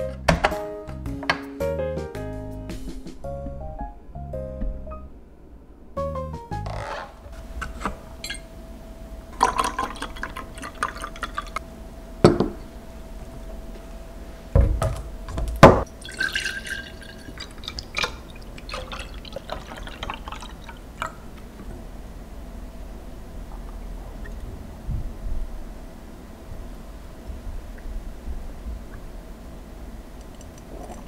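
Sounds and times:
glass bottles clinking: 0:07.7 - 0:08.5, 0:09.4 - 0:11.6, 0:16.0 - 0:21.2
liquid trickling into a jar: 0:09.4 - 0:11.6, 0:15.9 - 0:21.2.

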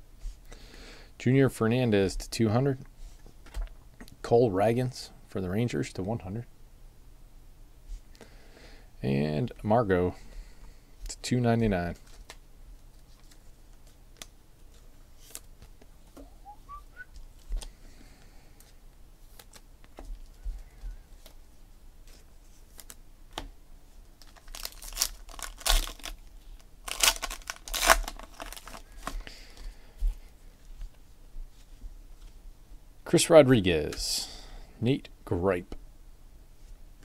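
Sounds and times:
faint rising whistle: 0:16.2 - 0:17.1
foil wrapper tearing and crinkling: 0:24.2 - 0:29.2.

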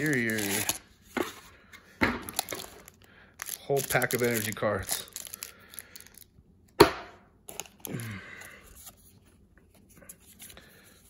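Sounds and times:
rustle of card and plastic wrap: 0:00.0 - 0:00.9, 0:02.3 - 0:06.3.

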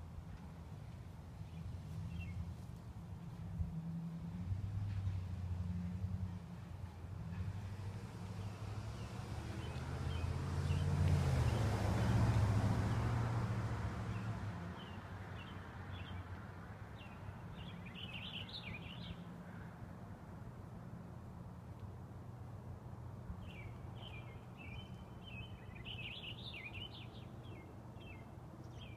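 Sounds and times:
vehicle passing by: 0:03.2 - 0:19.1
small birds chirping: 0:17.0 - 0:19.3, 0:23.4 - 0:28.9.

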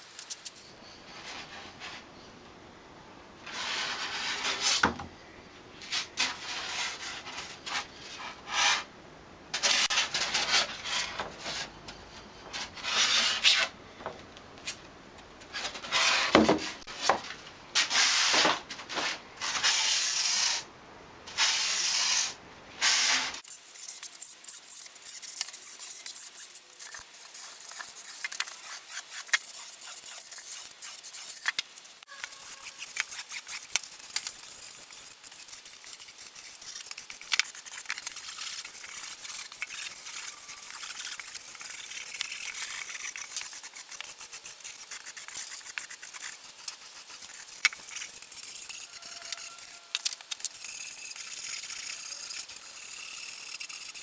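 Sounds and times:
rasp scraping foam: 0:21.4 - 0:54.0.

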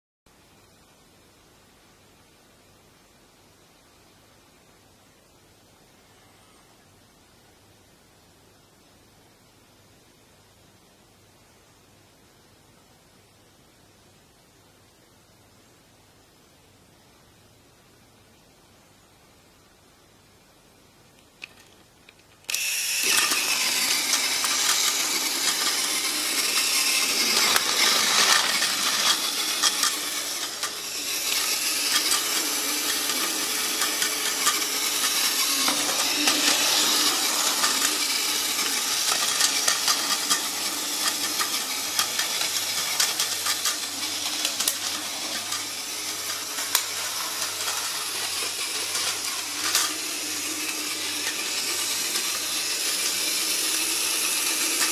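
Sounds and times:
toy train motor whirring: 0:22.4 - 0:54.9.

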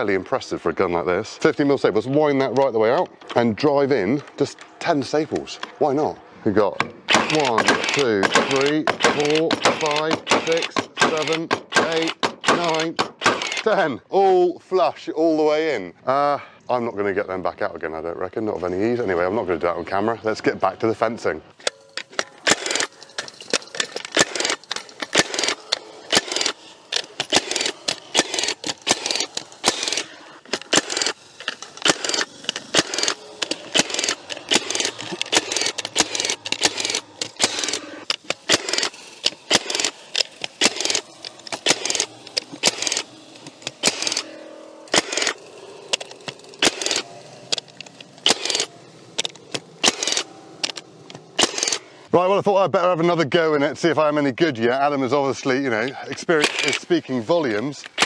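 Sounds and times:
stapler firing staples: 0:07.1 - 0:13.7, 0:22.2 - 0:22.9, 0:24.0 - 0:44.2, 0:44.9 - 0:50.8, 0:51.4 - 0:51.8, 0:56.4 - 0:56.8.

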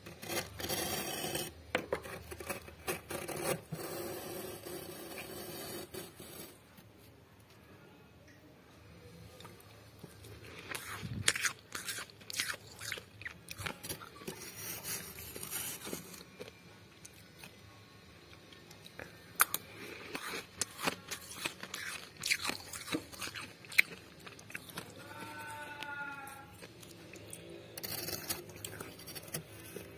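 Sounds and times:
freezer frost crunching: 0:10.1 - 0:17.6, 0:18.9 - 0:29.9.

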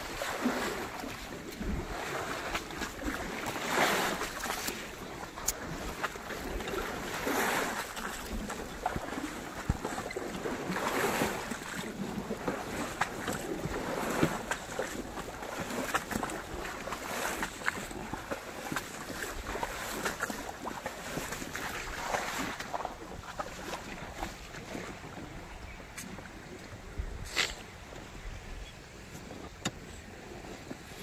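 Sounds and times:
elephant splashing in water: 0:00.0 - 0:27.9
wind on microphone: 0:21.2 - 0:31.0.

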